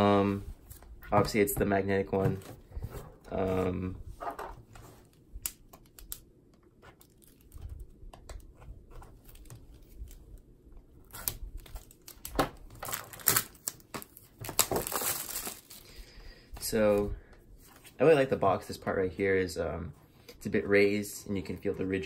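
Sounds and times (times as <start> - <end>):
plastic shrink-wrap crinkling and tearing: 11.0 - 15.9.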